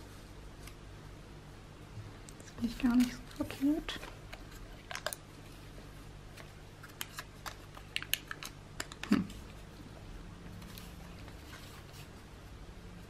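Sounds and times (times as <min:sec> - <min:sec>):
paper and craft materials handled: 0:02.6 - 0:09.2, 0:10.6 - 0:12.2.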